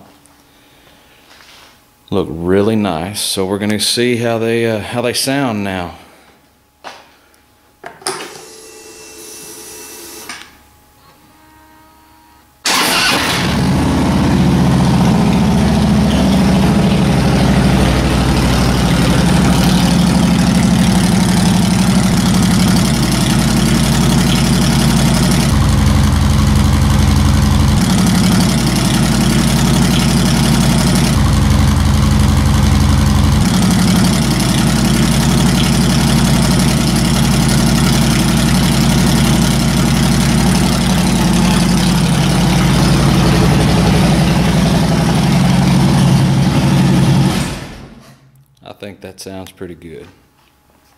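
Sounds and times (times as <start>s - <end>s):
motorcycle engine idling: 13.1s - 47.3s.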